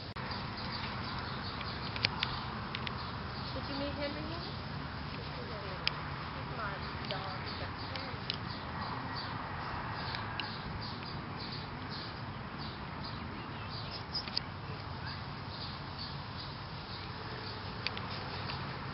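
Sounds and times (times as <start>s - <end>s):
sharp ticks: 0.3s - 4.4s, 5.1s - 6.1s, 6.8s - 8.6s, 14.1s - 14.9s, 17.8s - 18.8s
steady hiss: 13.9s - 18.9s.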